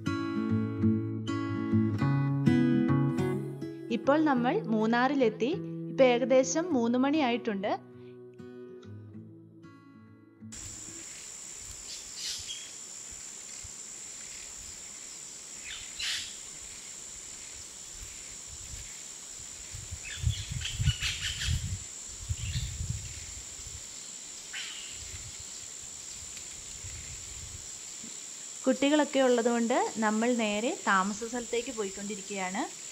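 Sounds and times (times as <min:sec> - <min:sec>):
insects droning: 0:10.6 - 0:32.9
wind on microphone: 0:17.9 - 0:23.9, 0:24.9 - 0:27.8.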